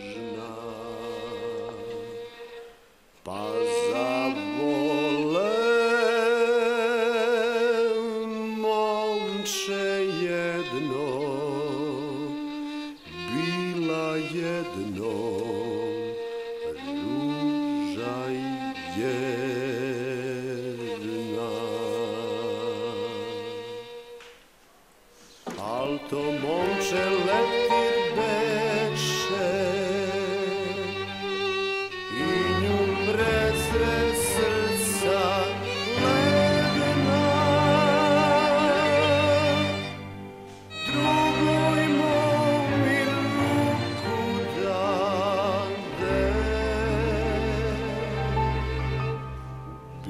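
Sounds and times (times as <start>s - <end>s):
solo violin slow melody: 0.0s - 24.4s, 25.5s - 50.0s.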